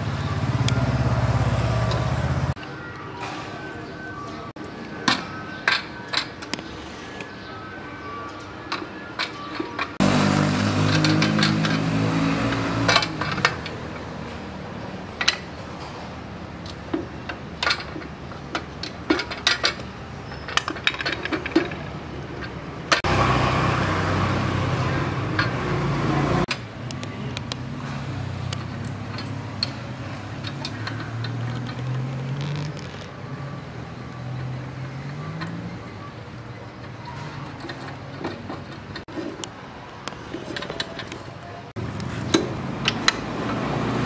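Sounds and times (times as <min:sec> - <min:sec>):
vehicle engine hum: 0:00.0 - 0:02.6, 0:10.0 - 0:20.1, 0:20.8 - 0:44.0
metal tools clinking: 0:28.5 - 0:32.6.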